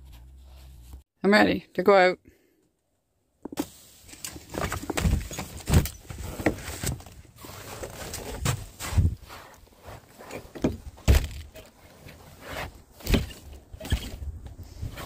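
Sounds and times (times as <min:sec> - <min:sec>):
wind on microphone: 0:13.8 - 0:15.0.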